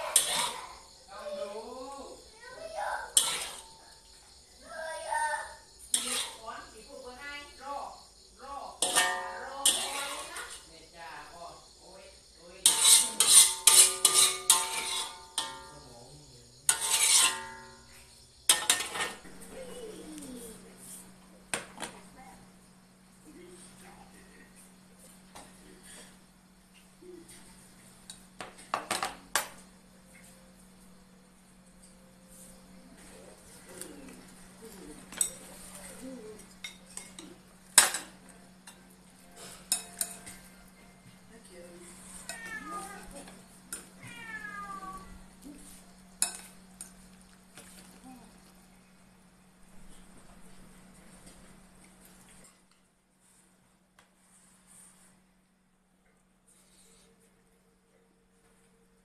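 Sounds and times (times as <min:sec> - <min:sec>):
metal spatula scraping wok: 0:00.0 - 0:00.8, 0:03.1 - 0:03.8, 0:05.9 - 0:06.5, 0:08.8 - 0:10.7, 0:12.6 - 0:15.8, 0:16.7 - 0:19.3
wok ringing: 0:08.7 - 0:10.6, 0:12.6 - 0:19.2, 0:39.4 - 0:40.7, 0:46.2 - 0:46.9
spoons clinking on ceramic bowls: 0:08.8 - 0:10.1, 0:36.4 - 0:38.8, 0:39.4 - 0:40.5, 0:46.2 - 0:47.0.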